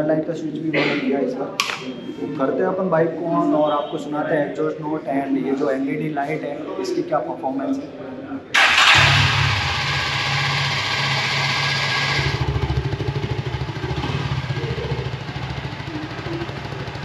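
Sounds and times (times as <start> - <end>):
motorcycle engine idling: 8.6 - 17.0.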